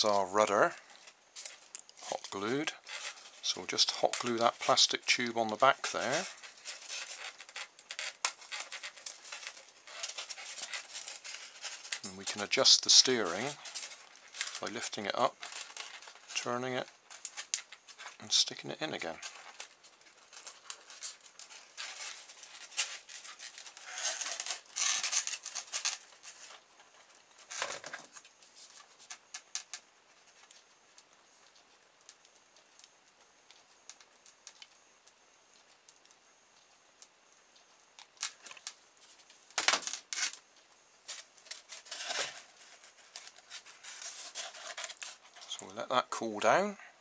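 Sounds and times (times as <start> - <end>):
foam block rubbing and clicking: 1.5 - 18.2, 41.1 - 45.7.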